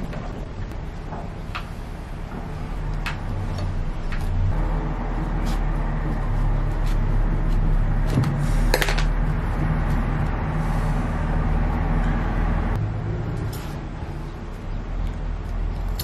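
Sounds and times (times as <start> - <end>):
engine-like hum and rumble: 0.0 - 16.0
scissors cutting rope: 15.0 - 16.0.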